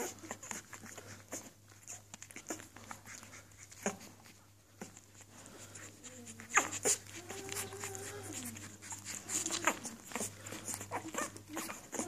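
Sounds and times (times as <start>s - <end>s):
puppies whimpering and squeaking: 0.0s - 12.0s.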